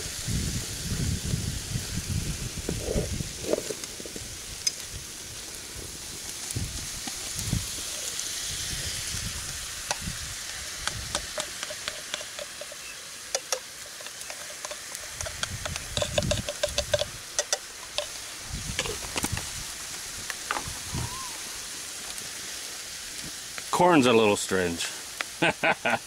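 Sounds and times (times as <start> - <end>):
food sizzling in a frying pan: 0.0 - 26.0
chopsticks clicking against pan: 10.8 - 18.2.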